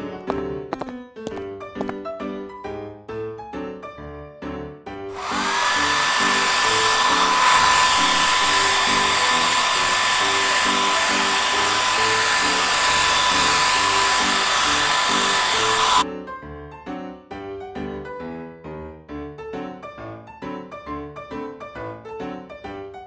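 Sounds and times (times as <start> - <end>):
hair dryer blowing: 5.1 - 16.0.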